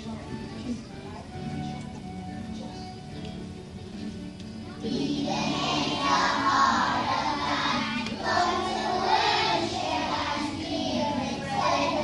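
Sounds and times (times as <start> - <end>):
backing music: 0.0 - 12.0
children singing together: 4.8 - 12.0.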